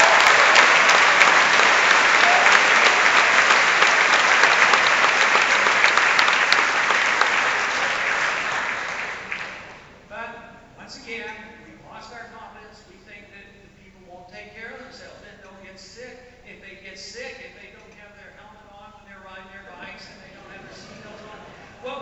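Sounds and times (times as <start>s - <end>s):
audience applauding: 0.0s - 9.9s.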